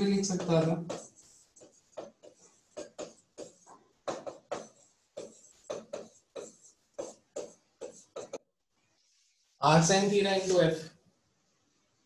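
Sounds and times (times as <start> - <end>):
person lecturing: 0.0 - 1.1, 9.6 - 10.9
pen writing on a board: 0.0 - 8.4.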